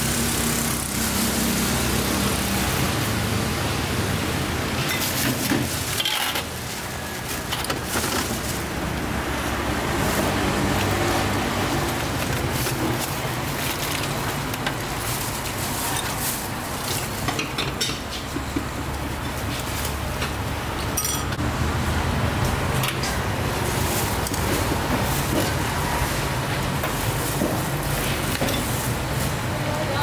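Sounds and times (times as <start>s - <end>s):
road traffic rushing: 0.0s - 30.0s.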